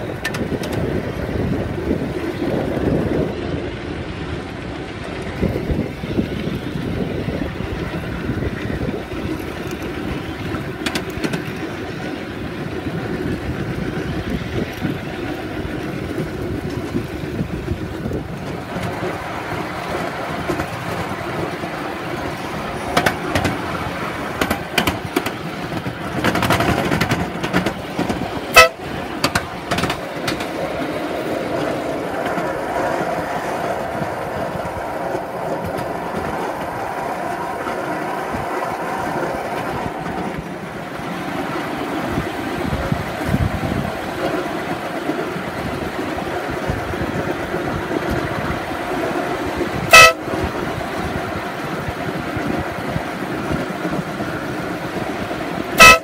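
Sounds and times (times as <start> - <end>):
miniature train rumbling on track: 0.0 - 56.0
train whistle toots: 28.5 - 28.9, 49.9 - 50.4, 55.8 - 56.0.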